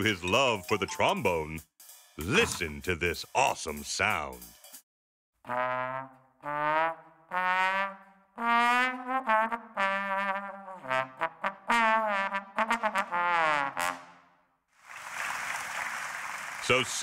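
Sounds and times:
solo trombone playing: 5.5 - 14.2.

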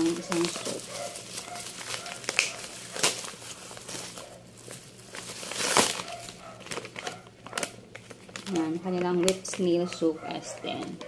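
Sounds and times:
sharp plastic crackles: 0.0 - 10.0
bubble wrap crinkling: 0.0 - 11.0.

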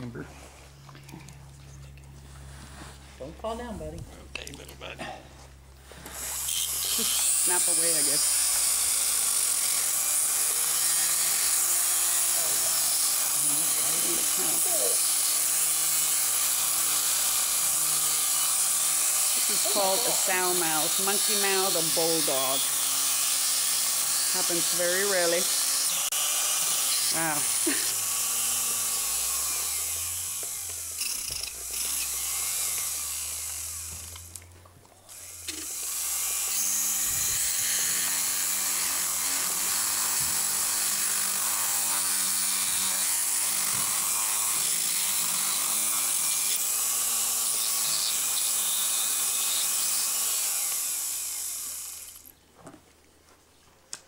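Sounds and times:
dental grinder high hiss: 6.0 - 34.2, 35.1 - 52.2.

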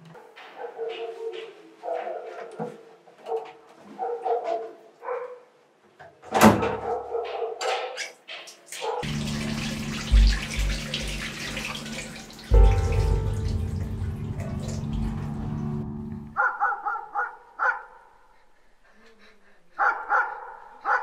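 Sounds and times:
water running into sink: 8.4 - 15.9
low steady hum: 9.1 - 16.4.

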